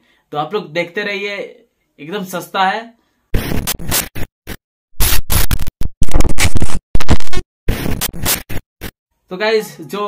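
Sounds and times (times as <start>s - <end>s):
glitchy static noise bursts: 3.4s - 9.0s.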